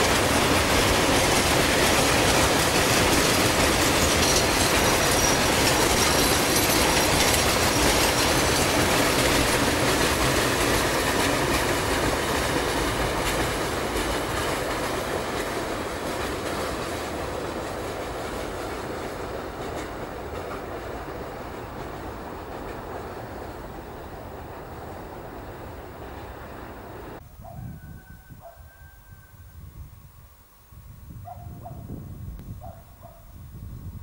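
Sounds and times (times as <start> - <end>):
train wheels clattering on rail: 0.0 - 27.2
wheel squeal: 3.1 - 8.4.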